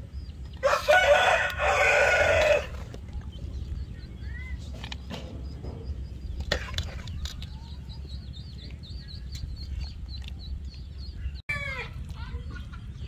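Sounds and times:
bird chirping: 0:03.1 - 0:11.4.

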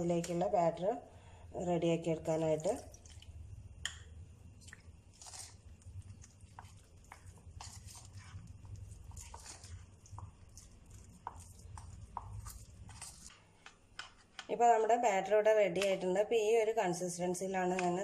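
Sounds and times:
steady low hum: 0:00.0 - 0:14.5
spoon stirring batter in bowl: 0:04.7 - 0:14.6.

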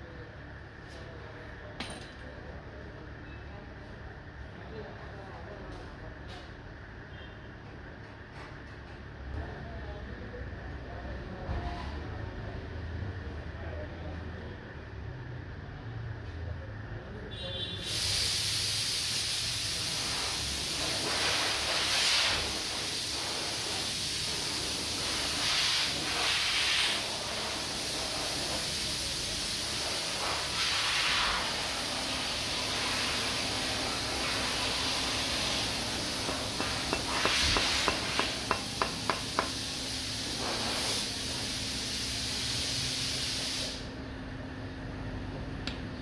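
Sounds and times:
steady hiss with rushes: 0:17.9 - 0:43.9.

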